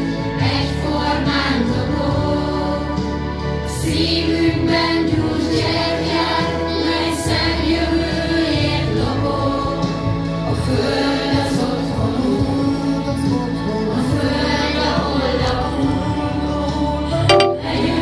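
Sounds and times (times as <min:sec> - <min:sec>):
children and adults singing: 0:00.4 - 0:03.1, 0:03.8 - 0:10.0, 0:10.7 - 0:12.8, 0:13.9 - 0:18.0
instrumental backing track: 0:17.2 - 0:18.0.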